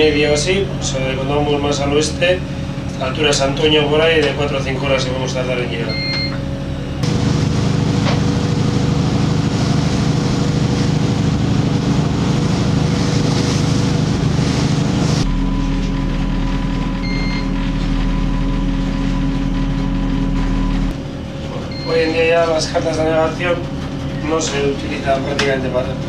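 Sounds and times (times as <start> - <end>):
boat engine running: 0.0 - 26.0
electrical hum with thin whine: 0.0 - 26.0
short electronic beep: 15.2 - 19.2, 21.6 - 22.2.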